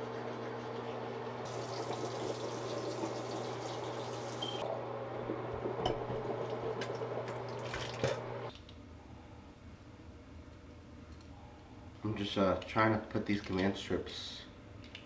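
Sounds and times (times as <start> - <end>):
tap water running into sink: 1.5 - 4.6, 6.1 - 8.3.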